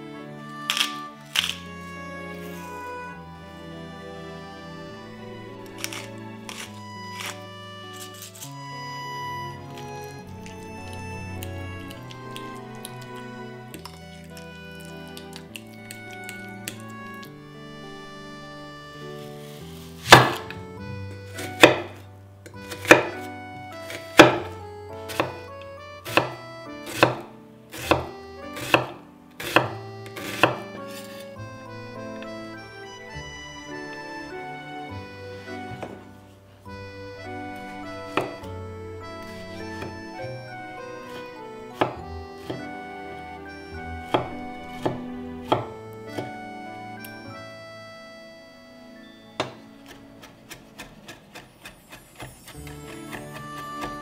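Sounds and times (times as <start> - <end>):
soft background music: 0.0 - 54.0
knife slicing onion on wood: 20.0 - 20.6, 21.4 - 22.0, 22.6 - 25.4, 26.0 - 31.2, 38.1 - 38.5, 39.2 - 40.0, 40.6 - 42.7, 44.1 - 46.4, 49.4 - 54.0.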